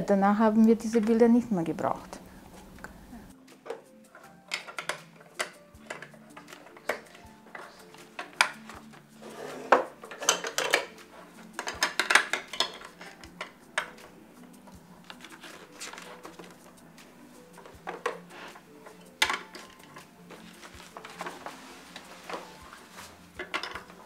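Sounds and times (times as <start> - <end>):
plastic toys clattering in box: 4.4 - 14.0, 15.0 - 16.7, 17.6 - 22.6, 23.4 - 24.0.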